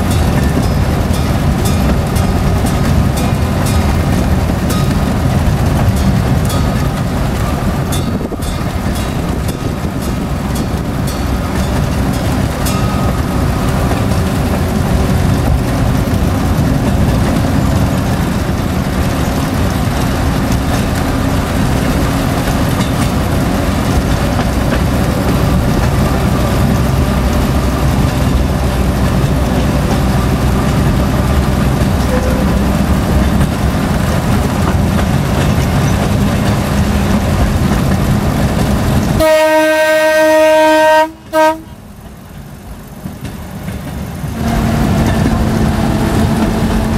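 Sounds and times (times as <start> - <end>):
rail car rumbling on track: 0.0 - 46.9
train horn blasts: 31.9 - 33.1, 39.1 - 41.8, 44.4 - 46.9.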